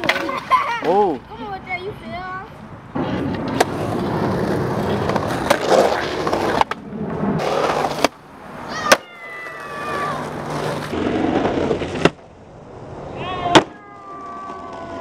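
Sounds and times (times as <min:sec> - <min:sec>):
skateboard popping and landing: 0:00.0 - 0:01.0, 0:03.0 - 0:12.3, 0:13.3 - 0:15.0
skateboard wheels rolling: 0:00.0 - 0:15.0.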